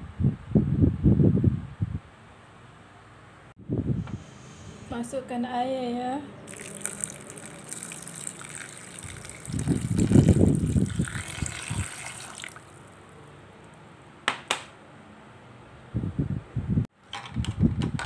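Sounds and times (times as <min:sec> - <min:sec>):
water pouring into plastic jug: 0:06.5 - 0:12.8.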